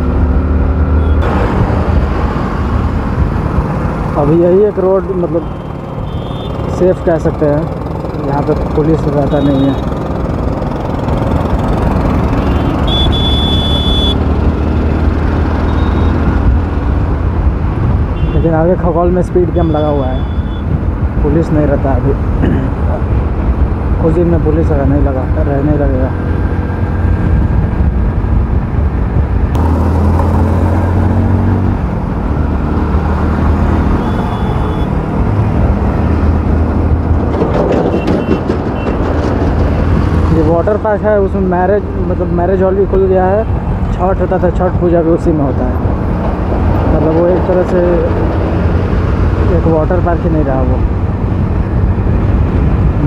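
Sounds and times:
motorcycle engine and road noise: 0.0s - 53.0s
wind noise: 1.0s - 4.2s, 14.2s - 18.7s, 26.1s - 30.1s, 50.6s - 53.0s
motorcycle engine running: 7.3s - 16.2s
high steady beep: 12.4s - 14.2s, 15.7s - 16.2s, 19.6s - 20.7s, 34.0s - 34.9s.

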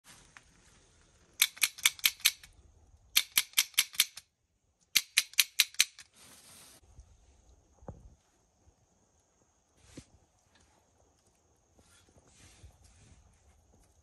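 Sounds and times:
clicker sharp clicks: 1.4s - 6.1s.

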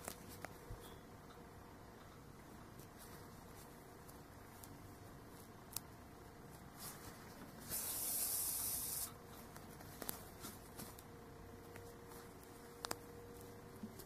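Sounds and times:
thread rubbing on yarn hiss: 7.6s - 9.2s.

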